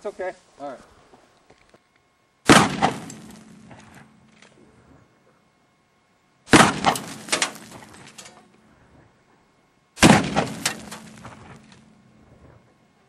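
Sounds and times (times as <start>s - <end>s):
rifle shots with rolling echo: 2.5s - 4.2s, 6.5s - 8.0s, 10.0s - 12.0s.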